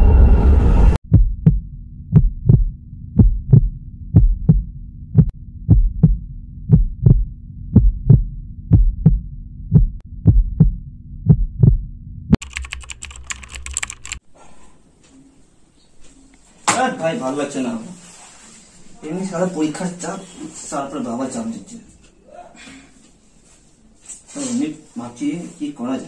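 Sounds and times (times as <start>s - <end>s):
steady low hum: 0.0s - 12.4s
heartbeat thumps: 1.0s - 12.4s.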